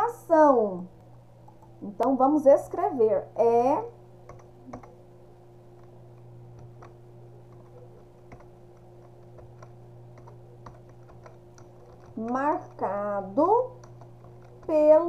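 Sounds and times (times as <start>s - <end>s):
steady low hum: 0.0s - 15.0s
keyboard key clicks: 4.3s - 5.0s, 6.6s - 12.8s.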